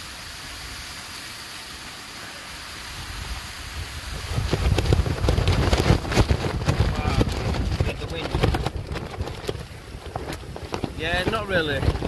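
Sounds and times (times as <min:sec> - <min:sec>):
rain hissing on tent: 0:00.0 - 0:12.0
wind rumble on microphone: 0:03.0 - 0:12.0
tent fabric flapping: 0:04.2 - 0:12.0.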